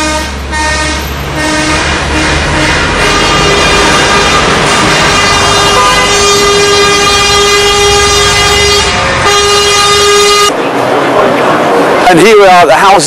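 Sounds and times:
truck air horns blasting: 0.0 - 10.6
lorries rumbling past: 0.0 - 13.0.

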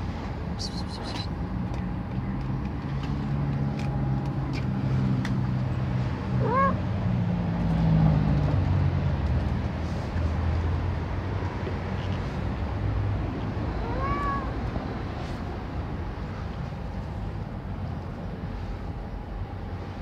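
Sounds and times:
cat meowing: 6.4 - 6.8, 13.7 - 14.7.

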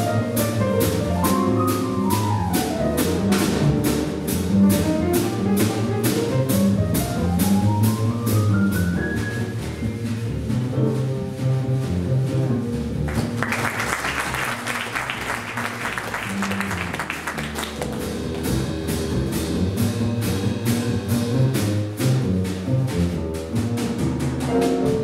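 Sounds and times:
jazz trio playing: 0.0 - 25.0
audience applause: 13.1 - 18.6.

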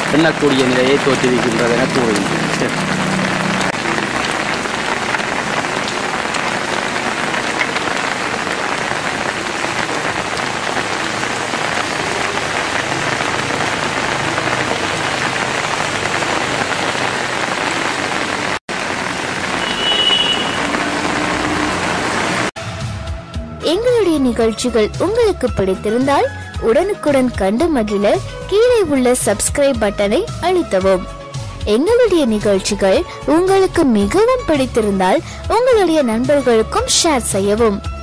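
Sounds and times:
heavy rain on paved ground: 0.0 - 23.0, 24.6 - 38.0.

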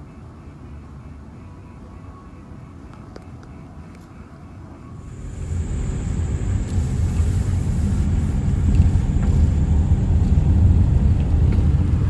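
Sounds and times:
car engine and tyre rumble: 0.2 - 12.0.

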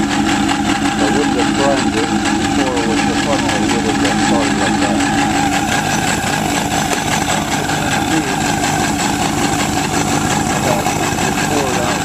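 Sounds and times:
snowmobile engine idling: 0.0 - 12.0.

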